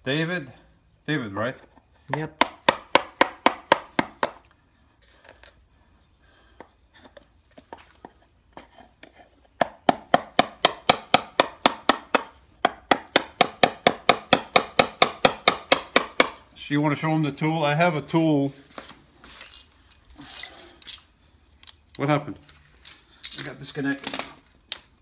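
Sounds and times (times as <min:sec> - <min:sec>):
hammer striking chisel into wood: 0:02.1 - 0:04.4, 0:09.6 - 0:16.4.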